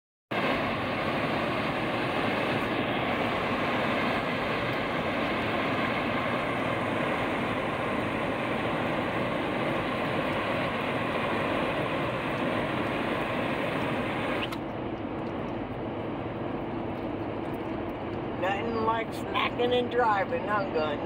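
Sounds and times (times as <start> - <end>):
car road noise from inside: 13.4 - 21.0.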